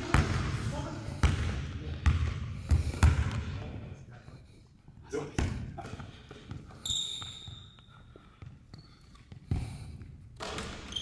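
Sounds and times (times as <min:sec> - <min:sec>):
basketball bouncing on wooden floor: 0:00.0 - 0:03.6, 0:05.4 - 0:11.0
sneaker squeaks: 0:05.2 - 0:09.7, 0:10.4 - 0:11.0.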